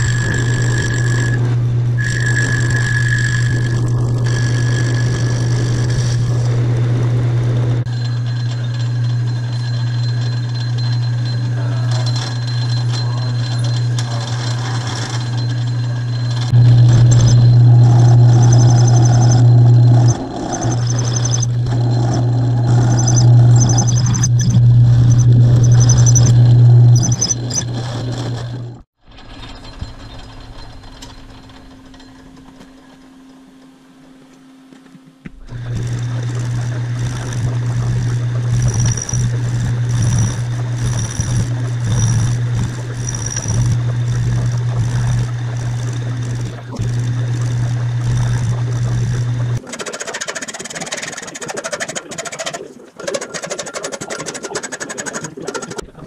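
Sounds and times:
hand file rasping on metal: 0.0s - 6.5s
metal lathe humming: 0.0s - 28.9s, 35.3s - 49.6s.

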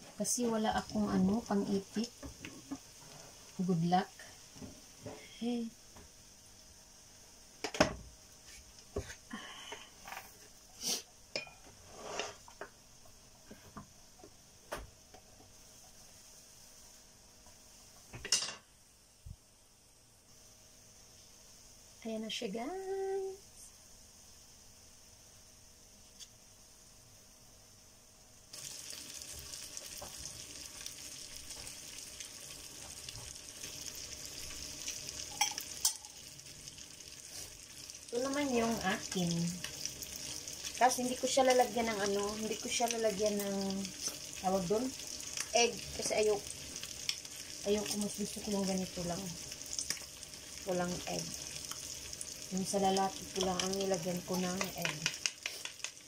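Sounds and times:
meat sizzling on hot metal: 0.0s - 6.8s, 10.5s - 12.7s, 28.5s - 56.0s.

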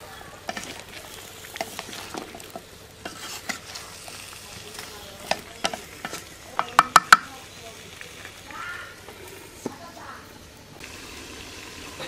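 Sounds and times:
frying in oil sizzle: 0.0s - 12.0s
wooden spatula scraping a pan: 0.5s - 6.3s.

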